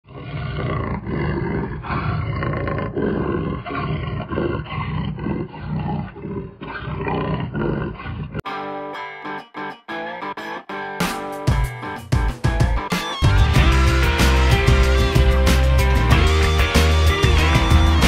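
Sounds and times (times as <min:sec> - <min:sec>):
big cat grunting roars: 0:00.1 - 0:08.4.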